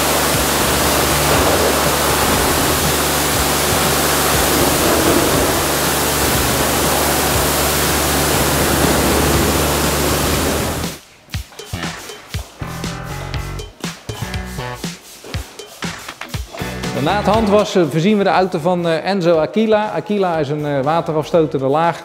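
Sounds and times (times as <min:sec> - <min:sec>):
steady low hum: 0:00.0 - 0:11.0
pressure washer spray hissing: 0:00.0 - 0:17.4.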